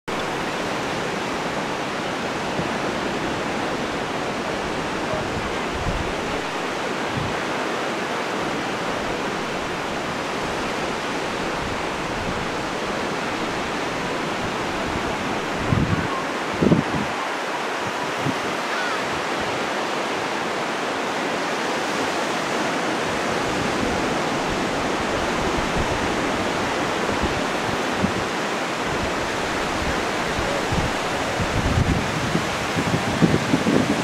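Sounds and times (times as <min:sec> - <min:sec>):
wind: 0:00.0 - 0:34.0
sea surf rushing: 0:00.1 - 0:34.0
wind thumps on microphone: 0:04.7 - 0:06.5, 0:14.3 - 0:17.2, 0:17.8 - 0:18.6, 0:23.4 - 0:28.3, 0:28.9 - 0:34.0.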